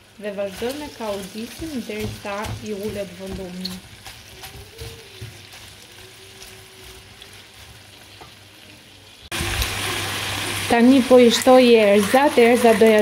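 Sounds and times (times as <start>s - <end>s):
vegetables sizzling in oil: 0.0s - 13.0s
wooden spatula stirring: 0.3s - 8.6s.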